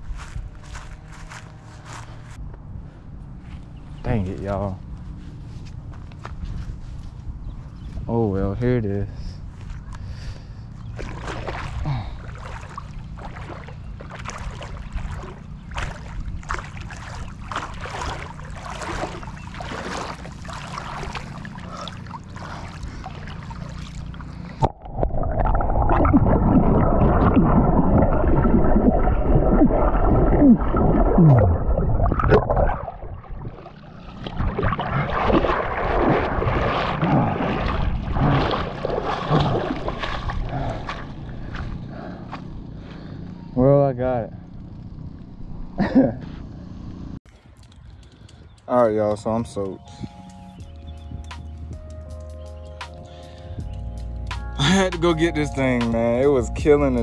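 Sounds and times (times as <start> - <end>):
water splashing around legs: 10.8 - 42.4
muffled underwater gurgling: 11.0 - 42.2.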